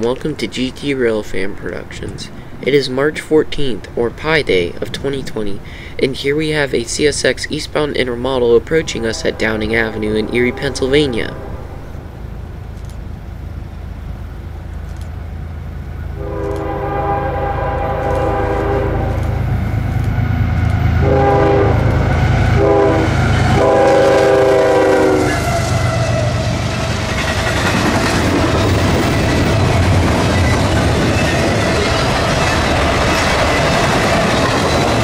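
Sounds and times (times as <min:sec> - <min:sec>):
diesel train rumble: 0:00.0 - 0:35.0
train air horn: 0:08.8 - 0:12.0, 0:16.2 - 0:19.4, 0:21.0 - 0:26.4.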